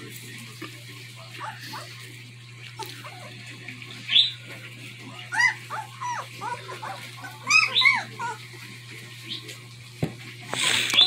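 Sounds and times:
puppies squeaking and whining: 0:01.1 - 0:09.6.

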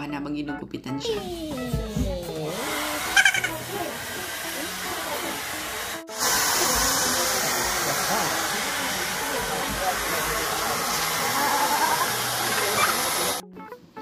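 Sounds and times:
hair dryer blowing: 0:02.5 - 0:13.4.

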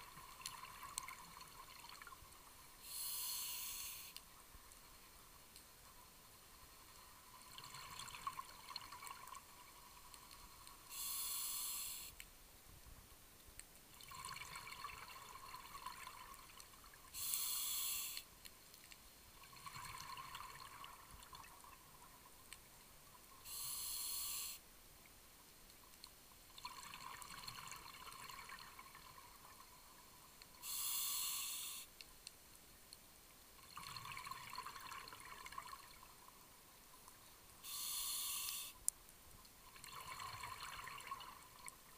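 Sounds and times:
regulator hissing inhalations: 0:02.8 - 0:04.2, 0:10.9 - 0:12.2, 0:17.2 - 0:18.3, 0:23.4 - 0:24.6, 0:30.6 - 0:31.9, 0:37.6 - 0:38.8
exhaled bubbles underwater: 0:39.8 - 0:41.6.

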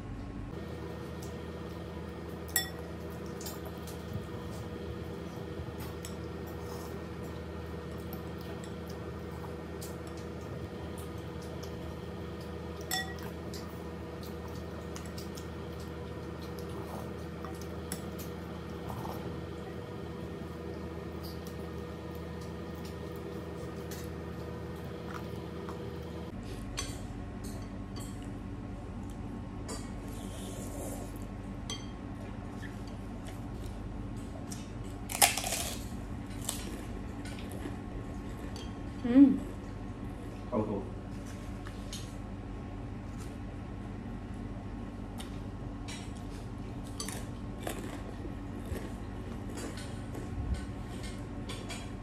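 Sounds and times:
crunchy bite into fruit: 0:35.0 - 0:37.8.

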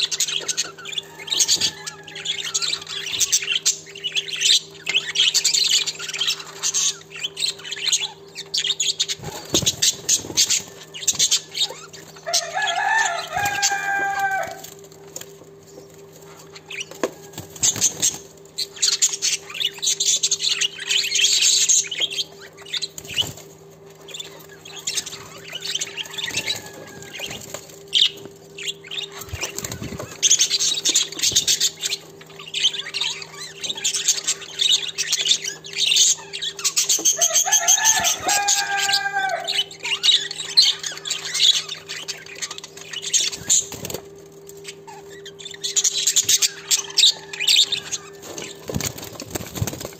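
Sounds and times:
budgerigars chattering: 0:00.0 - 0:14.6, 0:24.0 - 0:44.0, 0:44.6 - 0:49.9
wings flapping: 0:09.2 - 0:11.4, 0:25.9 - 0:31.8, 0:43.3 - 0:44.6, 0:47.8 - 0:49.9.

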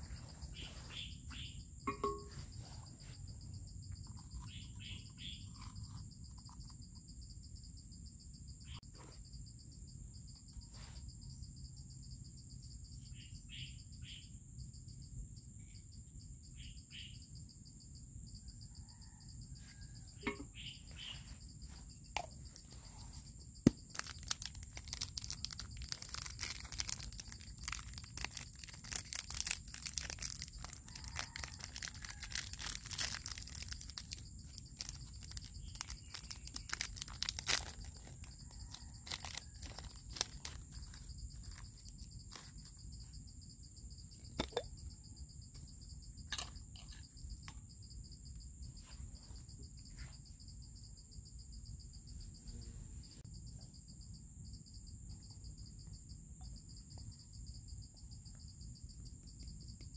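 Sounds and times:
high-pitched insect chorus: 0:00.0 - 0:59.9
plastic snack packet crinkling: 0:23.7 - 0:42.6.

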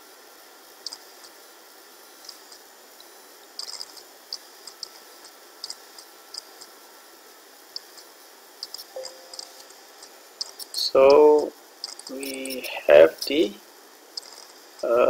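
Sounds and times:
steady background hiss: 0:00.0 - 0:15.0
high-pitched chirps: 0:08.7 - 0:09.8.

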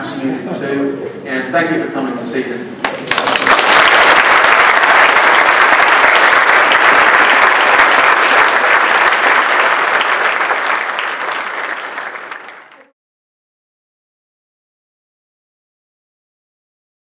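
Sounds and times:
audience applauding: 0:02.8 - 0:12.9.

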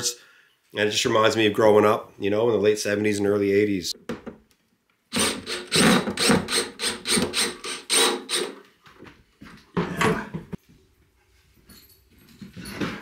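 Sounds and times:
cordless drill driving a screw: 0:05.1 - 0:08.6.

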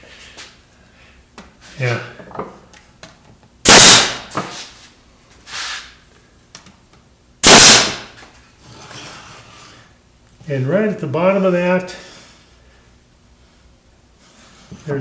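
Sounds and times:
pneumatic nailer firing: 0:03.6 - 0:04.6, 0:07.4 - 0:08.2.

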